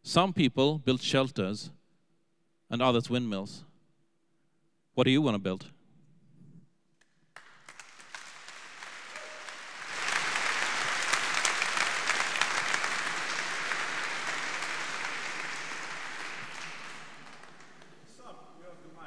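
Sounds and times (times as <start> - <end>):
audience applauding: 7.4 - 18.1.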